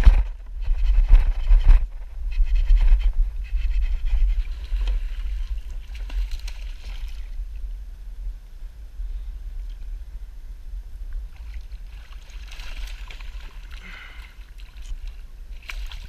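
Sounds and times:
low rumble: 0:00.0 - 0:14.4
fish splashing in water: 0:11.4 - 0:16.0.

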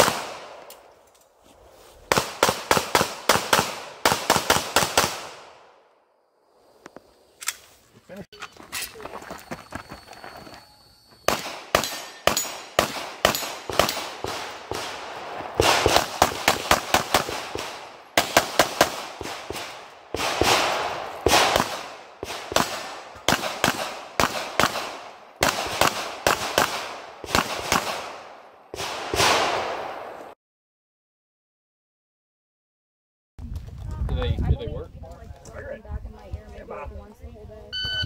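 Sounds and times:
rapid pistol fire: 0:00.0 - 0:00.6, 0:02.1 - 0:05.6, 0:11.3 - 0:30.1.

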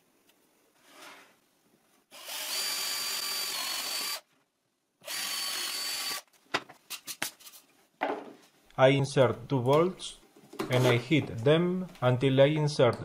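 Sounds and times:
electric drill whining: 0:02.1 - 0:04.2, 0:05.0 - 0:06.3.

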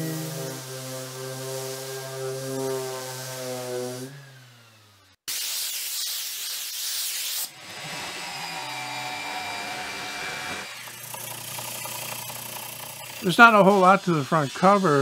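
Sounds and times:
band saw cutting plywood: 0:00.0 - 0:05.2, 0:07.1 - 0:15.0
loud hiss: 0:05.3 - 0:07.5.

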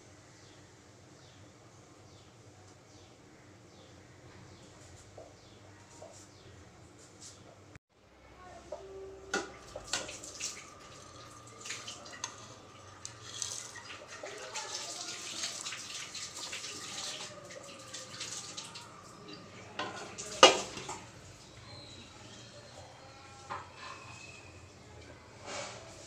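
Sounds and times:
tap water running and splashing: 0:09.3 - 0:21.1.

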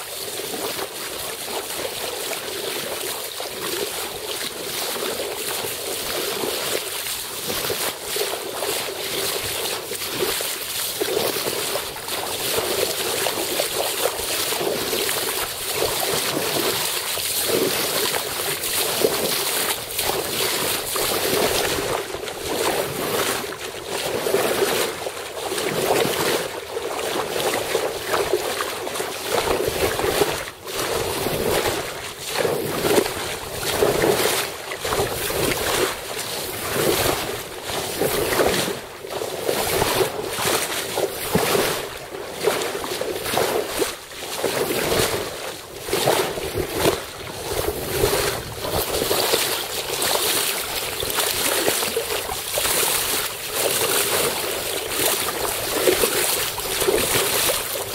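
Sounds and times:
water splashing along boat hull: 0:00.0 - 0:57.9
wind buffeting microphone: 0:46.4 - 0:49.3.

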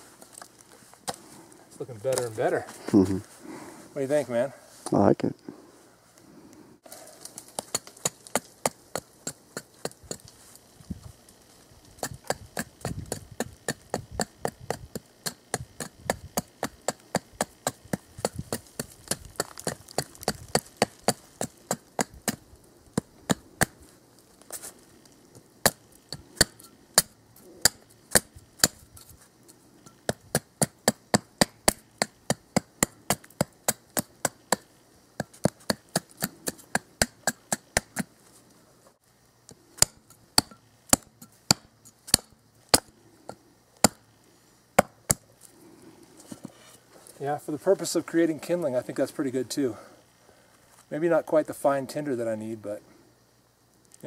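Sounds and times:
tomahawk chopping wood: 0:07.2 - 0:10.3, 0:12.0 - 0:23.8, 0:25.6 - 0:29.0, 0:29.9 - 0:38.1, 0:39.8 - 0:43.0, 0:43.8 - 0:44.1, 0:44.8 - 0:45.2.

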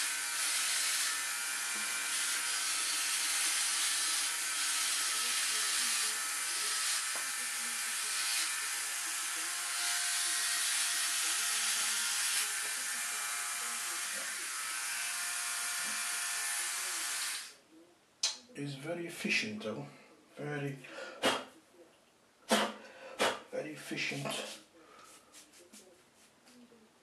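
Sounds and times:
electric trimmer buzzing: 0:00.0 - 0:17.5.

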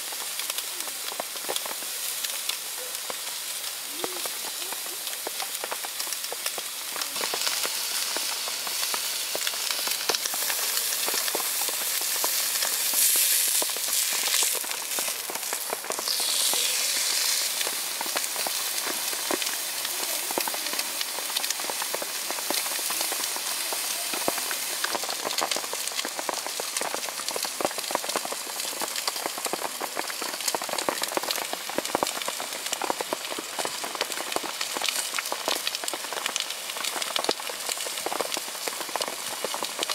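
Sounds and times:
steak sizzling on grill plate: 0:00.0 - 0:28.6
rain falling: 0:00.0 - 0:39.9.

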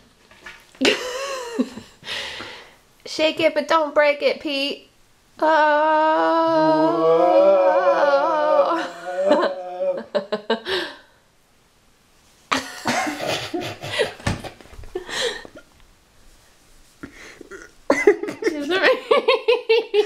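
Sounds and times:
person laughing: 0:00.8 - 0:02.0, 0:08.5 - 0:11.0, 0:12.5 - 0:15.6, 0:17.4 - 0:20.0.

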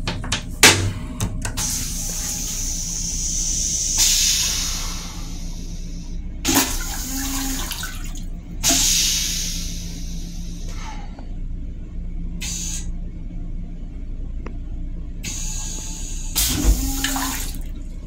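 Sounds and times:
toilet seat thump: 0:00.0 - 0:01.6, 0:16.4 - 0:17.3
toilet flushing water hissing: 0:01.5 - 0:10.7, 0:15.2 - 0:18.0.

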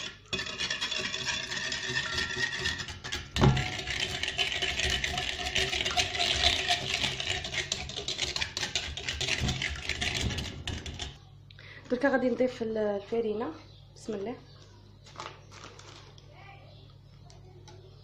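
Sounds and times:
whisk rattling against bowl: 0:00.0 - 0:11.2.

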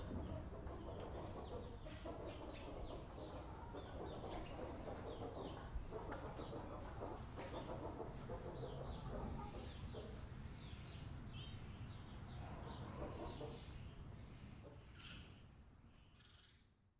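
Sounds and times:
hen clucking: 0:00.0 - 0:10.3, 0:12.4 - 0:13.8
chicks peeping: 0:00.0 - 0:16.2.

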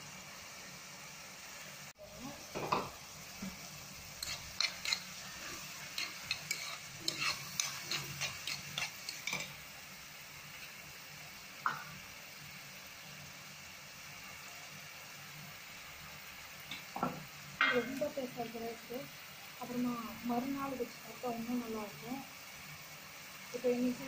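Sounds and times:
onions sizzling in a pan: 0:00.0 - 0:24.0
spatula scraping a pan: 0:02.6 - 0:09.7.

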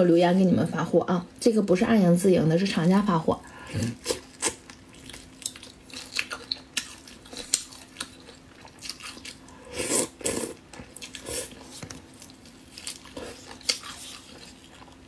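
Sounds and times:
crunchy chewing and biting: 0:03.8 - 0:15.0.

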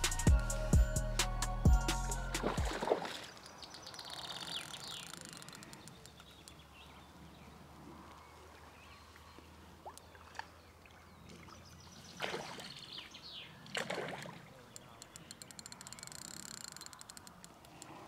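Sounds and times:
fish splashing in water: 0:02.4 - 0:03.6, 0:12.2 - 0:13.0, 0:13.7 - 0:14.5
small ticks: 0:04.0 - 0:06.6, 0:14.7 - 0:18.0.

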